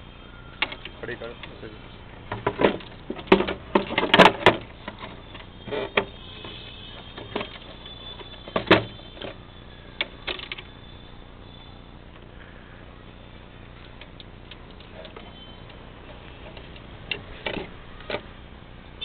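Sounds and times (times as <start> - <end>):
faint high steady tone: 0.0 - 2.3, 4.6 - 17.0.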